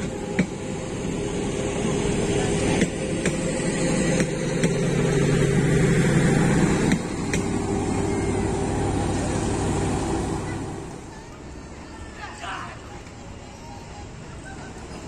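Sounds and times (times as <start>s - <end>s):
train rumble and hum: 0.0s - 15.0s
wheels clacking on rail joints: 2.6s - 11.0s.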